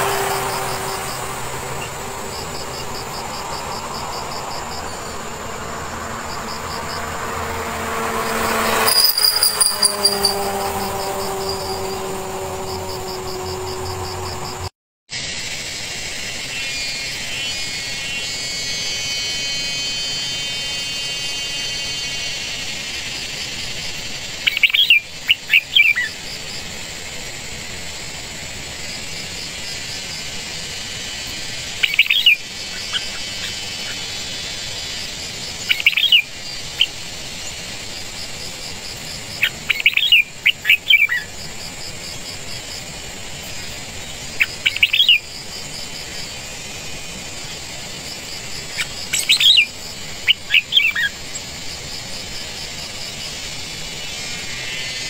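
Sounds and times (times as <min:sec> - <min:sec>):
birds sharp quick chirps: 0:06.5 - 0:12.1, 0:24.3 - 0:26.2, 0:31.7 - 0:35.0, 0:35.6 - 0:37.7, 0:39.3 - 0:41.4, 0:43.6 - 0:45.3, 0:48.6 - 0:51.2
steady high hiss: 0:15.1 - 0:55.0.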